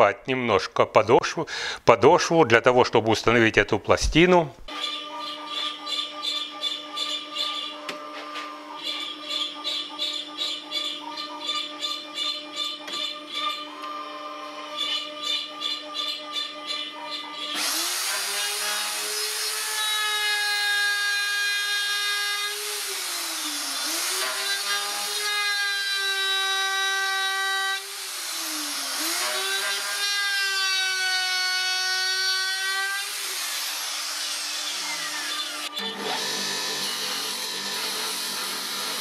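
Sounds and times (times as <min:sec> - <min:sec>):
router motor whine with cutting hiss: 0:17.6 - 0:20.5, 0:27.3 - 0:30.2, 0:33.0 - 0:39.0.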